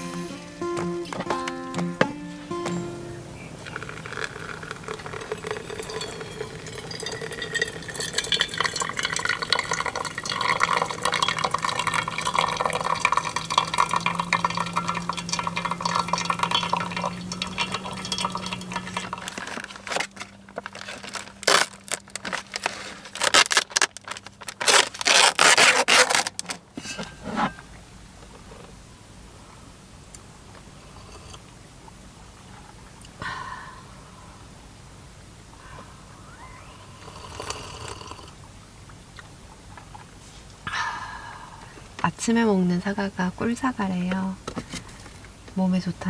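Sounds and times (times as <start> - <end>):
hot water pouring into filter: 3.6 - 24.8
rustles and knocks of handling: 16.6 - 28.8.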